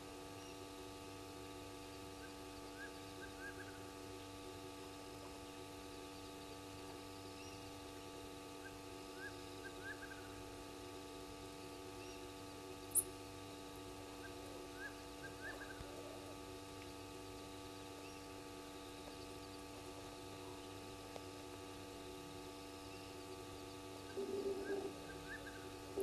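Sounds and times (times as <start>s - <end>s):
steady electrical hum: 0.0s - 26.0s
faint chirps: 11.6s - 26.0s.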